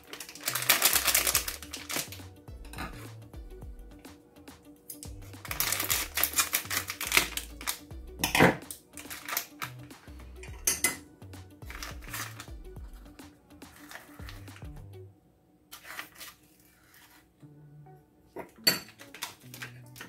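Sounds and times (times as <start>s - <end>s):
plastic packet crinkling: 0.0s - 2.2s, 5.4s - 7.8s, 9.0s - 9.8s, 11.7s - 12.5s, 19.0s - 20.0s
scissors cutting plastic: 0.0s - 2.2s, 4.9s - 9.8s, 18.8s - 20.0s
background music with bass line: 0.6s - 15.1s.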